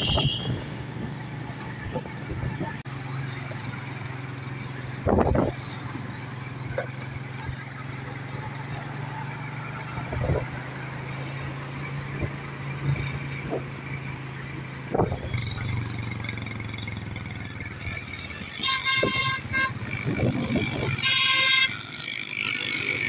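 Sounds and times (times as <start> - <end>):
car horn: 0.0 - 0.7, 18.2 - 21.9
engine hum and road noise: 0.0 - 23.0.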